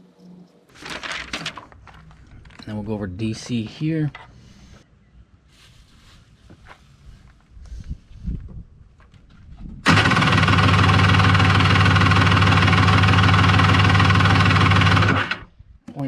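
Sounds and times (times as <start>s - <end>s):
engine cranking on starter: 9.8s - 15.5s.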